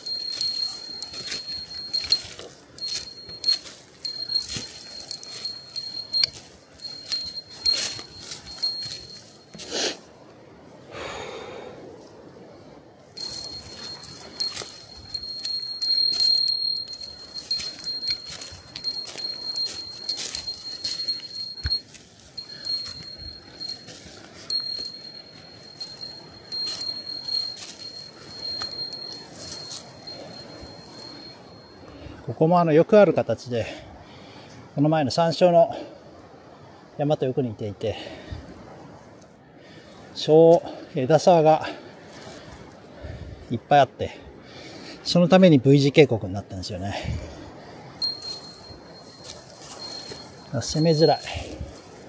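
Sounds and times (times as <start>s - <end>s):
small bell jingling: 0.0s - 10.0s, 13.1s - 32.0s, 47.4s - 52.0s
footsteps in chain spikes: 0.0s - 10.1s, 13.1s - 32.0s, 47.8s - 52.0s.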